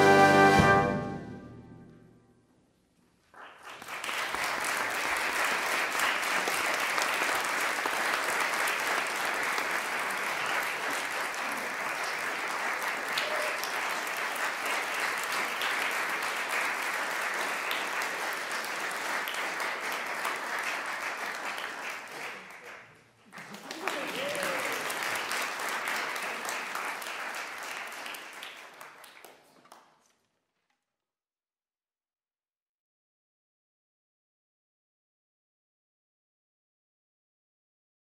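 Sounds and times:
audience applauding: 3.3 - 30.2.

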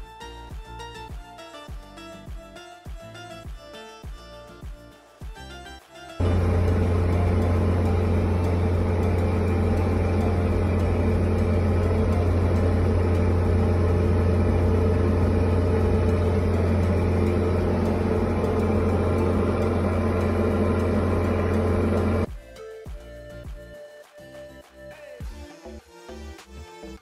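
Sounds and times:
plane engine and propeller: 6.2 - 22.3.

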